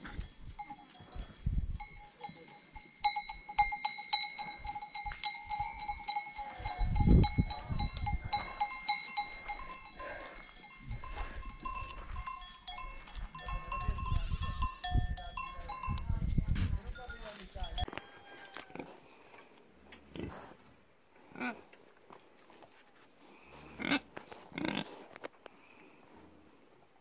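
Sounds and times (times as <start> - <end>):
goat bells clanking: 0.6 - 18.4.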